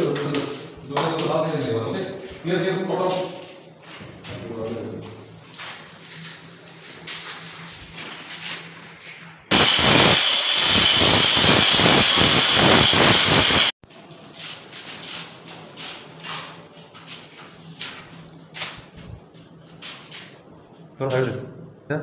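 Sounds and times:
angle grinder cutting stone: 0:09.5 - 0:13.7.

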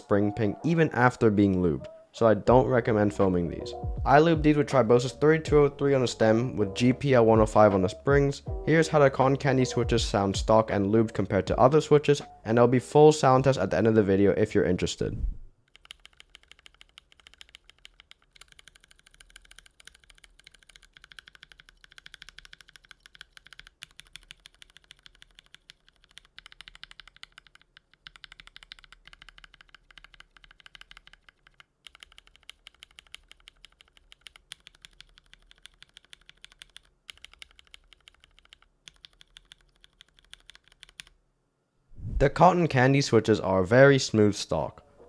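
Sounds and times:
mechanical keyboard typing: 0:15.7 - 0:41.1.

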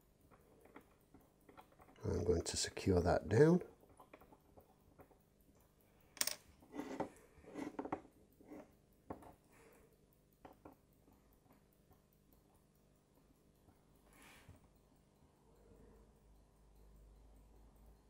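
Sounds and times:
small hand tools clicking and scraping: 0:00.3 - 0:11.6.

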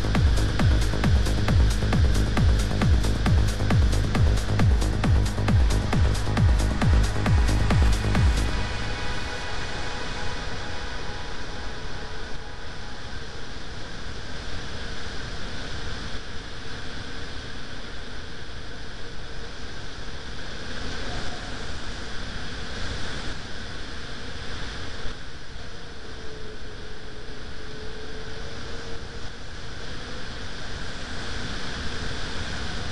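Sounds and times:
wind buffeting microphone: 0:00.0 - 0:17.2
faint steady hum: 0:00.0 - 0:32.9.

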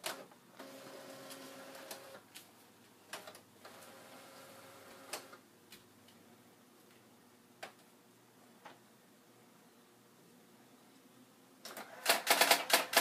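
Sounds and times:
typewriter clicks: 0:11.7 - 0:13.0
loud typewriter clack: 0:12.0 - 0:13.0.

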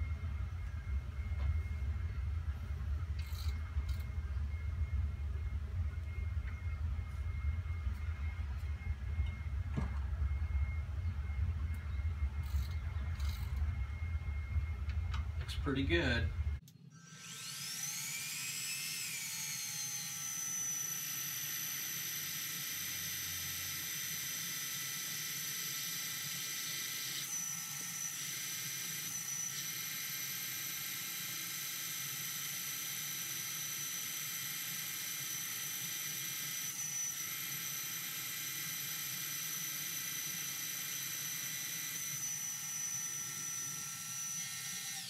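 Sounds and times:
mill motor whining: 0:00.0 - 0:45.0
drill bit boring through wood: 0:03.1 - 0:05.2, 0:17.0 - 0:45.0.

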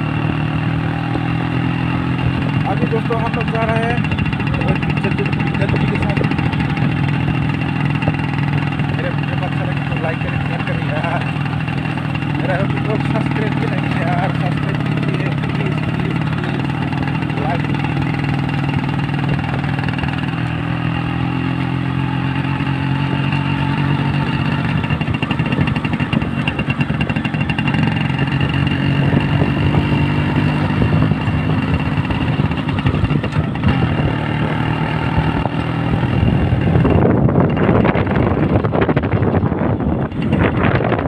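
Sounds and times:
two-stroke motorcycle engine: 0:00.0 - 0:41.0
wind buffeting microphone: 0:02.2 - 0:08.8, 0:24.4 - 0:41.0.

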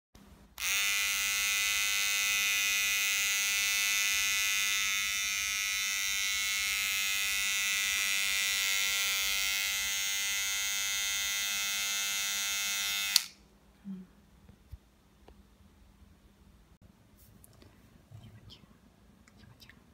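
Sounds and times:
electric hair clipper buzzing: 0:00.6 - 0:13.4.

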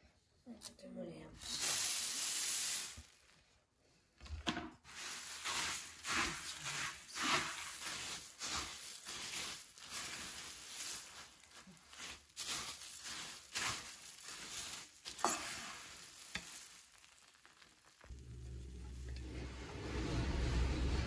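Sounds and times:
puffed rice hissing in syrup: 0:01.4 - 0:03.4, 0:04.9 - 0:19.1
metal spoon scraping and rustling: 0:04.9 - 0:20.6.

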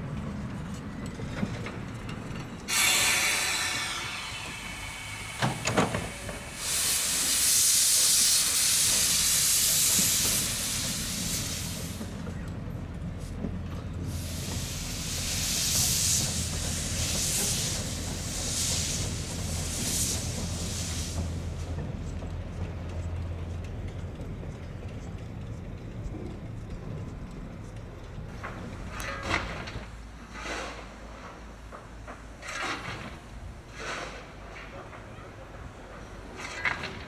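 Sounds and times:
steam locomotive moving off: 0:01.3 - 0:37.0
hissing steam blasts: 0:02.7 - 0:12.3, 0:14.0 - 0:21.7.

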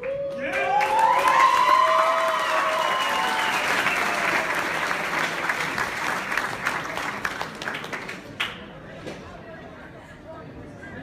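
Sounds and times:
high-pitched cheers: 0:00.0 - 0:04.7
audience clapping: 0:00.0 - 0:08.6.

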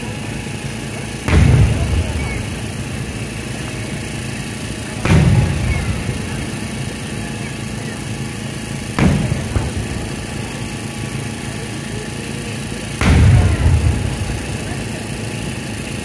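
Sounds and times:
firework booms: 0:01.2 - 0:07.7, 0:08.9 - 0:11.5, 0:13.0 - 0:15.4
low rumbling echo: 0:01.2 - 0:15.8.

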